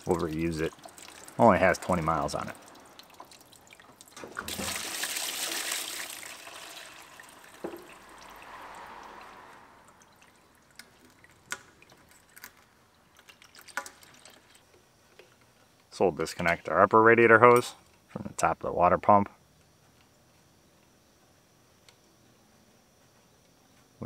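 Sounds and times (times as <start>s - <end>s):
liquid pouring into plastic pan: 0.0s - 8.0s, 10.0s - 14.6s.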